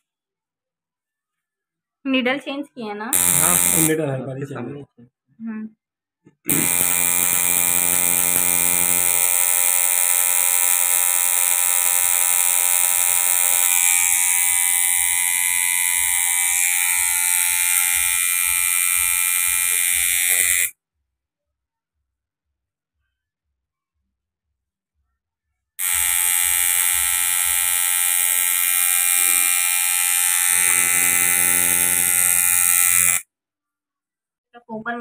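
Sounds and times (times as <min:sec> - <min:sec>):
tattoo machine buzzing: 0:03.1 - 0:04.0, 0:06.5 - 0:20.8, 0:25.8 - 0:33.3.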